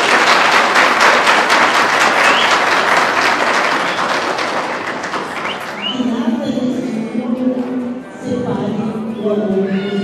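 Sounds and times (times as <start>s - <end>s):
people applauding: 0.0s - 6.0s.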